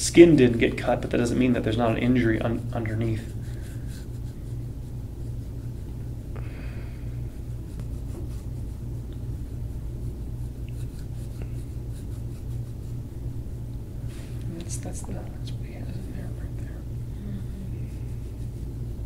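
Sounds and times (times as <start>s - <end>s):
low room hum: 0.0s - 19.0s.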